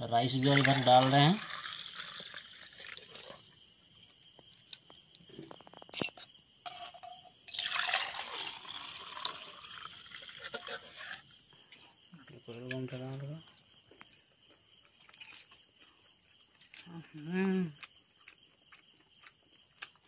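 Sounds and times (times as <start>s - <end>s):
crickets trilling: 0.0s - 20.0s
liquid pouring into steel tumbler: 0.2s - 3.4s, 6.7s - 11.2s
metal clinks: 5.8s - 7.4s.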